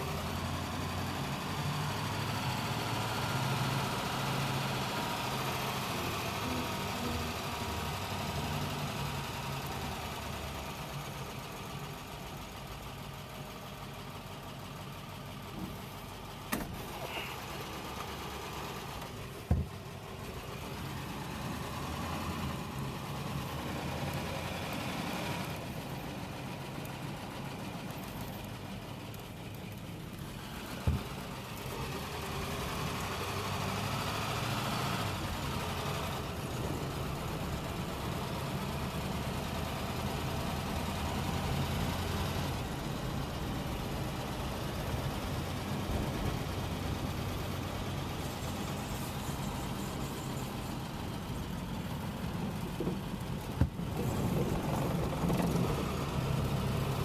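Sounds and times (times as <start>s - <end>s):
car engine running: 0.0s - 57.0s.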